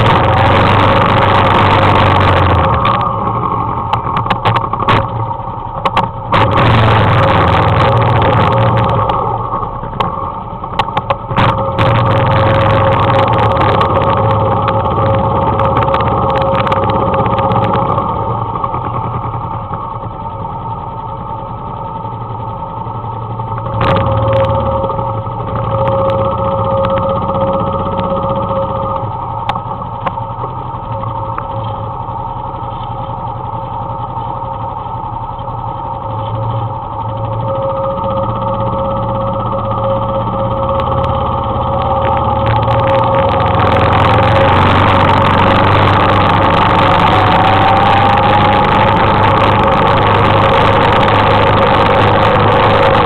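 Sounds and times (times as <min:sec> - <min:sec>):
sharp rattling clicks: 0:00.0 - 0:19.9, 0:34.0 - 0:53.0
atv engine running: 0:00.0 - 0:53.0.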